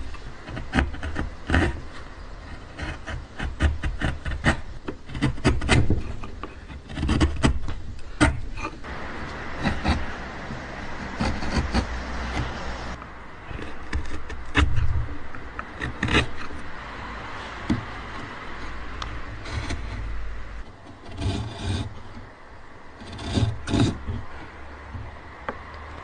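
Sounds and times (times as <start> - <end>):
chisel scraping and shaving wood: 0.0 - 25.2
sharp clicks and knocks: 2.8 - 16.7, 17.6 - 18.4.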